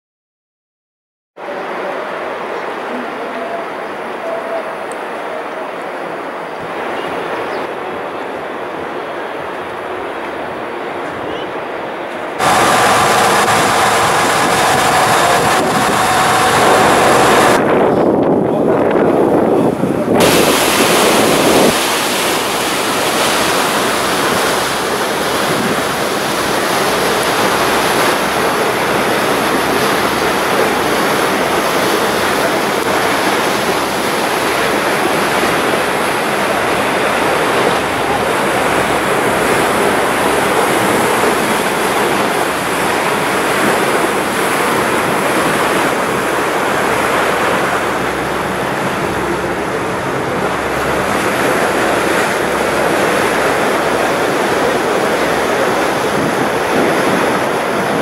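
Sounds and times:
choppy sea water: 1.4s - 58.0s
wind rushing: 12.4s - 26.6s
wind buffeting microphone: 12.4s - 58.0s.

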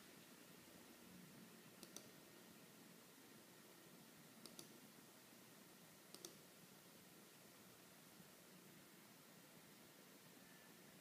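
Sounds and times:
faint room hiss: 0.0s - 11.0s
mouse button clicks: 1.8s - 2.1s, 4.4s - 4.7s, 6.1s - 6.4s.

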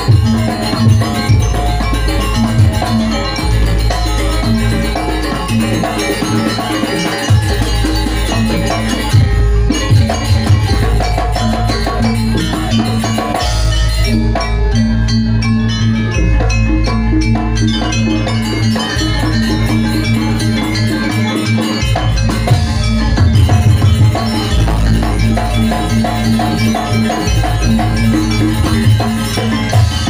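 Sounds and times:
gamelan ensemble playing: 0.0s - 30.0s.

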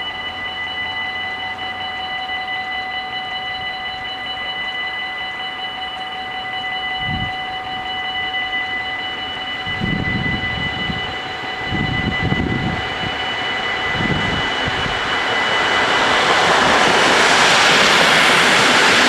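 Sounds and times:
level crossing warning bells: 0.0s - 19.0s.

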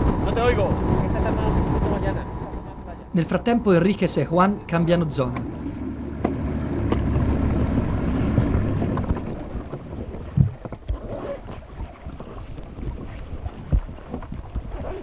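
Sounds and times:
outboard motor running: 0.0s - 15.0s
thump on boat: 8.3s - 11.6s.

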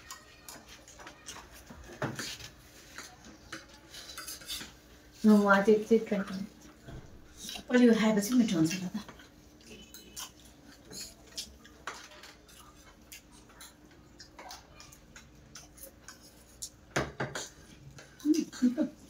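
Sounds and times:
cutlery clinking on ceramic plates: 0.0s - 4.8s, 9.8s - 17.6s.

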